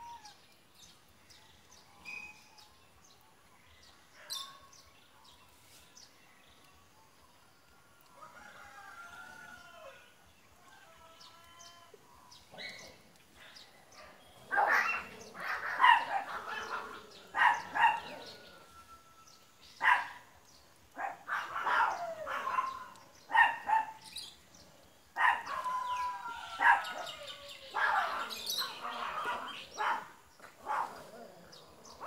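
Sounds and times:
dog barking: 14.0 - 18.4, 19.8 - 20.2, 21.0 - 24.0, 25.2 - 25.7, 26.6 - 27.1, 27.7 - 31.2
dog howling: 25.2 - 30.0.

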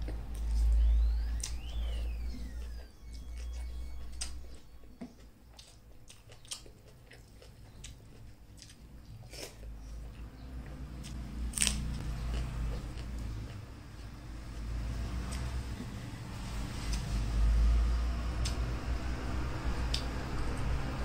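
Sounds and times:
chewing: 3.3 - 14.1.

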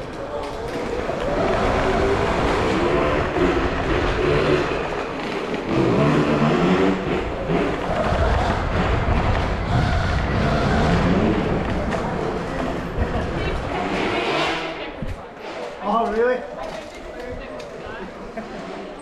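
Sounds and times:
electric dirt bike motors whining: 0.2 - 12.9.

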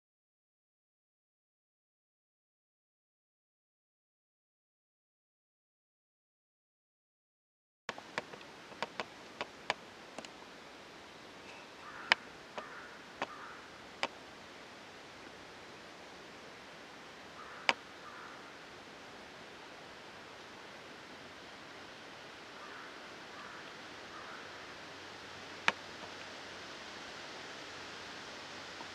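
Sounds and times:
sharp clicks: 7.9 - 10.4
microphone hiss: 7.9 - 28.9.

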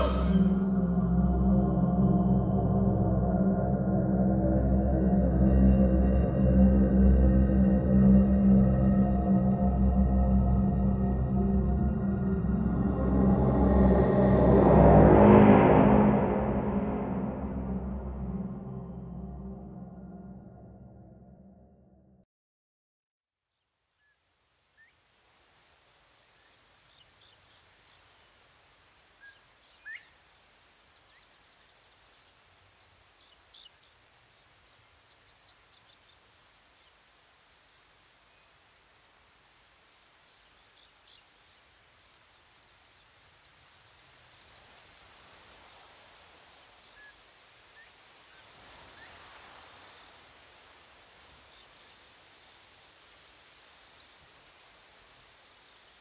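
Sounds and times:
brief higher calls: 0.0 - 0.8.

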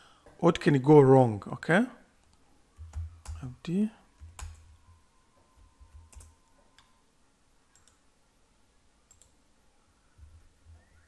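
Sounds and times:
computer keys clicking: 2.2 - 3.5, 4.2 - 4.8, 5.8 - 6.9, 7.7 - 8.0, 9.1 - 9.4.

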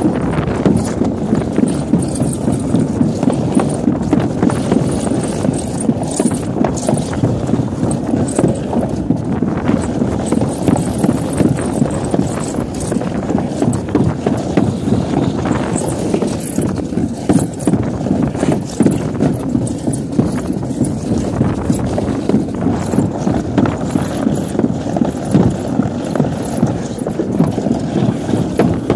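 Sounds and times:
sled rattling over bumps: 0.0 - 28.9
sled rumbling on track: 0.0 - 28.9.

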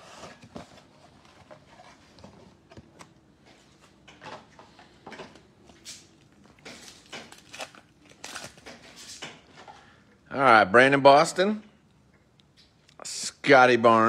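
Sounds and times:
foil card pack crinkling and tearing: 6.6 - 9.2.

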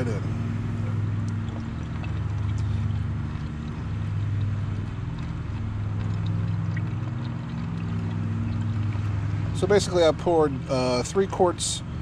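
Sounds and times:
low motor hum: 0.0 - 12.0
liquid pouring through funnel: 0.7 - 10.2.

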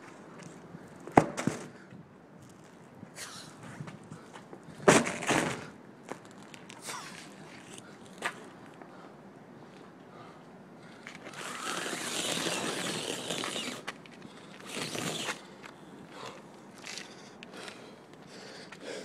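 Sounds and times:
scuffs and clicks: 10.9 - 18.8
rubber tire scraping: 11.1 - 14.0, 14.6 - 15.4.

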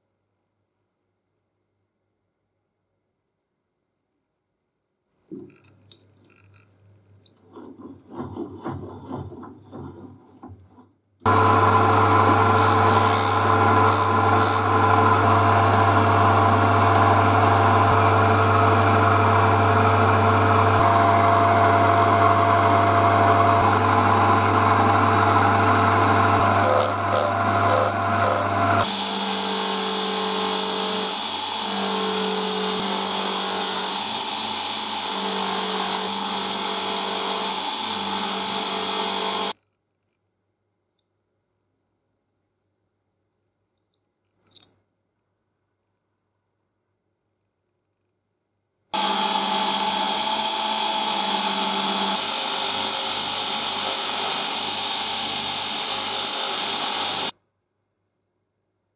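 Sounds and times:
buffing machine running: 11.3 - 39.6, 49.0 - 57.3
metal lathe humming: 11.3 - 39.6, 49.0 - 57.3.

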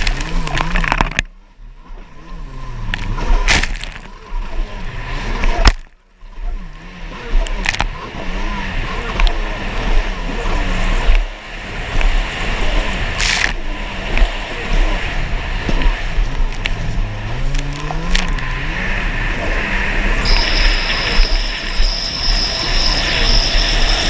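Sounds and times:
water slapping the hull: 0.0 - 6.2
jet ski engine revving: 1.9 - 24.0.

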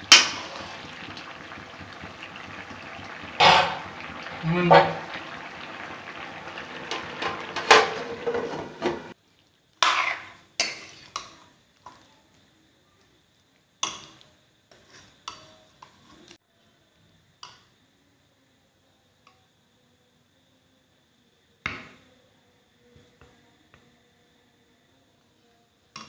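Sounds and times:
spoon scraping and knocking wok: 0.0 - 1.0, 3.4 - 5.2, 6.4 - 9.2, 9.8 - 11.4
curry sizzling in a wok: 0.0 - 16.4.

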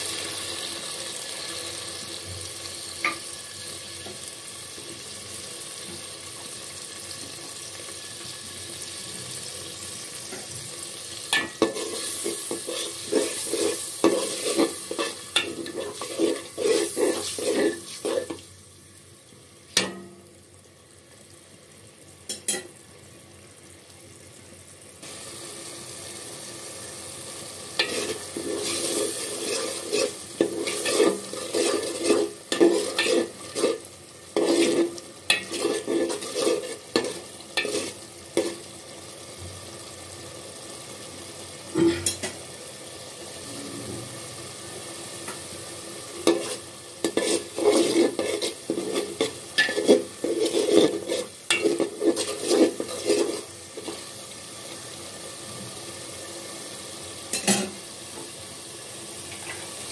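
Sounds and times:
oil sizzling: 0.0 - 59.9
spatula scraping a pot: 11.6 - 18.4, 27.8 - 38.6, 46.2 - 54.0.

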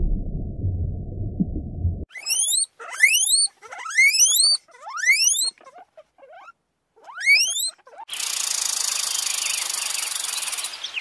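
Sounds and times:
rat squeaking: 2.1 - 8.9.

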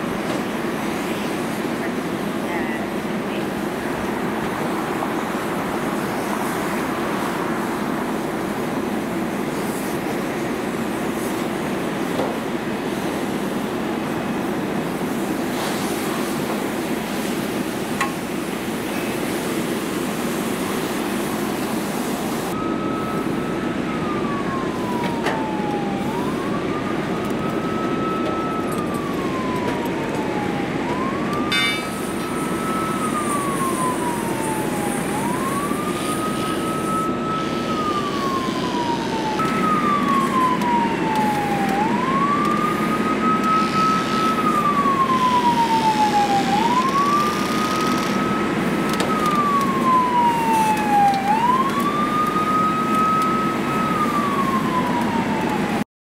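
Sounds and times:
fire hose spraying: 0.0 - 55.8
siren wailing: 22.5 - 55.9.

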